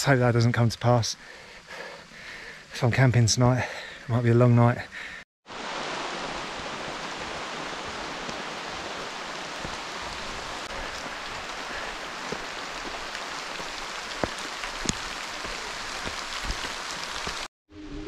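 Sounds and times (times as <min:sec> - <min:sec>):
rain on foliage: 0:05.5 - 0:17.5.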